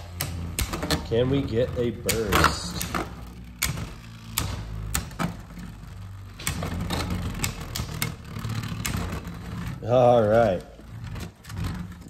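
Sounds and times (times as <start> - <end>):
spinning tops whirring: 0.0 - 12.0
sharp plastic clicks: 1.7 - 9.7.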